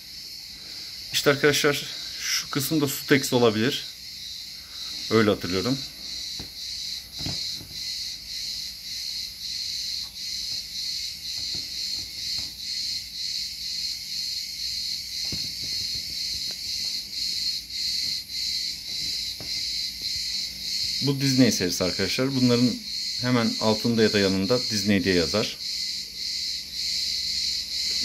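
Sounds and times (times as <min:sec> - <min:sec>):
insects chirping in pulsing trill: 0:00.0 - 0:28.0
faint knocks of toys on wooden shelf: 0:06.3 - 0:07.9, 0:10.5 - 0:12.7, 0:15.2 - 0:17.0.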